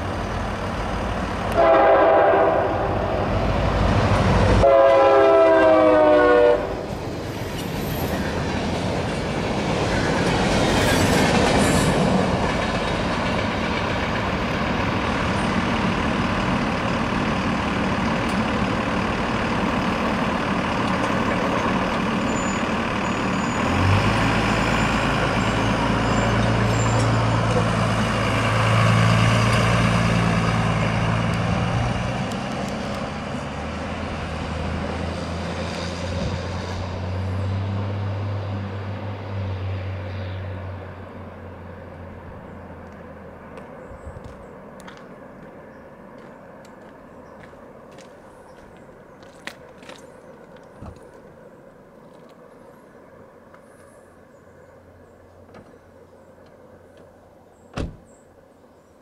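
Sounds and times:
train cars rumbling and clattering: 0.0s - 41.4s
locomotive air horn: 1.5s - 3.3s, 4.6s - 6.9s.

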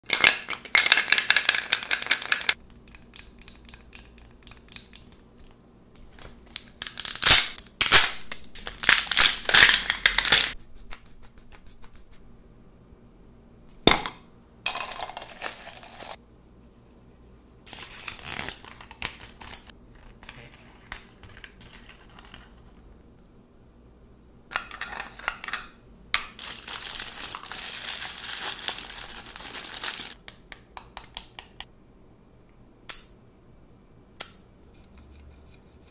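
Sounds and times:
plastic packaging crinkling: 6.2s - 10.6s, 17.7s - 22.5s, 26.4s - 30.2s
tissue paper crumpling: 26.4s - 30.2s
sharp click: 32.9s - 33.2s.

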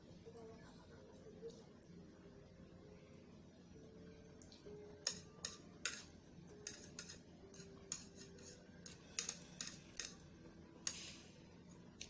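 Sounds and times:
chopsticks clicking on plate: 4.4s - 10.2s.

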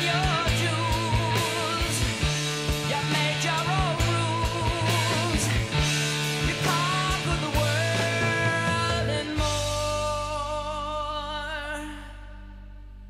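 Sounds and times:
steady drum beat: 0.0s - 10.5s
held bass notes: 0.0s - 13.0s.

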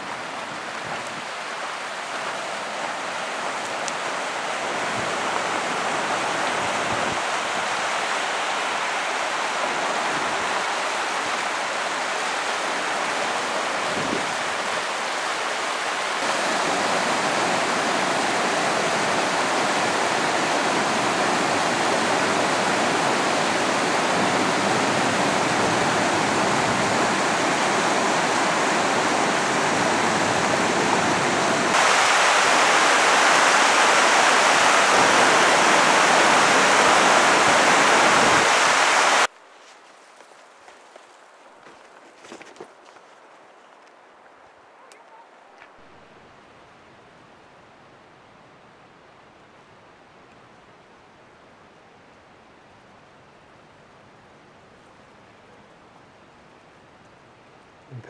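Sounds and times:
water rushing through a gorge: 0.0s - 39.3s.

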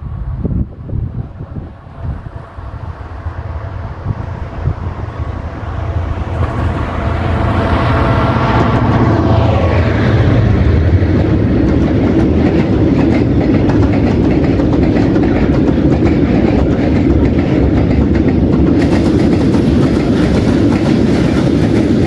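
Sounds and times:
steel wheels rumbling on rail: 0.0s - 22.0s
clickety-clack over rail joints: 5.9s - 22.0s.

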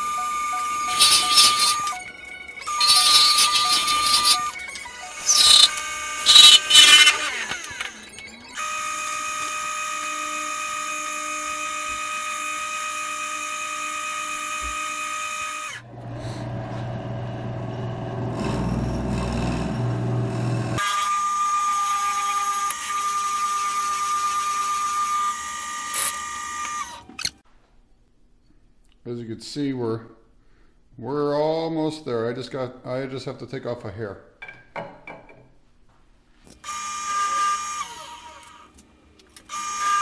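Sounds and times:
wood lathe motor whine: 0.0s - 27.4s, 36.6s - 38.8s, 39.5s - 40.0s
tool scraping spinning wood: 0.6s - 8.3s, 15.7s - 20.8s
low rough hum: 15.9s - 20.8s.

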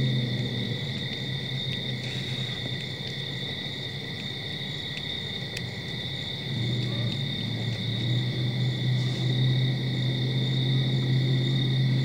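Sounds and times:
low hum: 0.0s - 12.0s
night insects singing: 0.0s - 12.0s
faint clicks: 4.2s - 5.8s.

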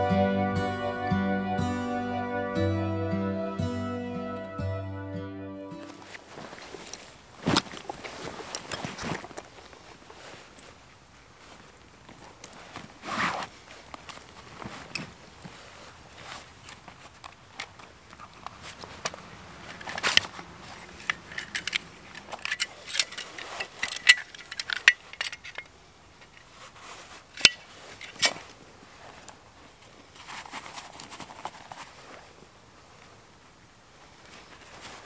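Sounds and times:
soft rustling: 5.8s - 35.0s
metal buckles clinking: 19.6s - 26.5s, 27.4s - 28.5s.

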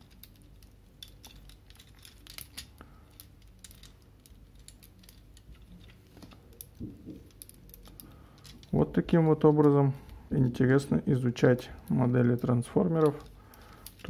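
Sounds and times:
plastic toy parts clicking: 0.0s - 8.8s.

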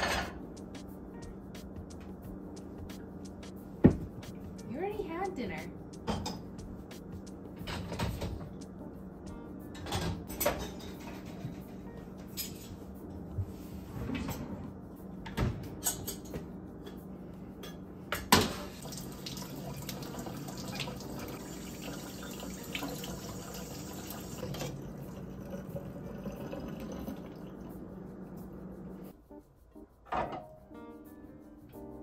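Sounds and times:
dishes knocking and clinking: 0.0s - 0.4s, 3.8s - 4.2s, 6.0s - 6.6s, 7.5s - 8.6s, 9.8s - 11.7s, 30.1s - 30.5s.

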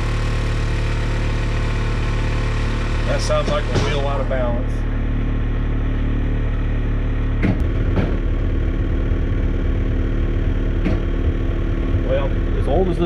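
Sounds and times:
furnace blower humming: 0.0s - 13.0s
knocks from blower: 3.0s - 4.4s, 7.3s - 8.8s, 10.7s - 12.1s.

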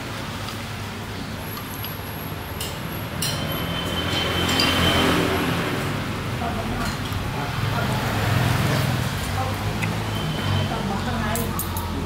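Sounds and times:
motor engine passing by: 3.6s - 6.6s, 7.3s - 11.2s.

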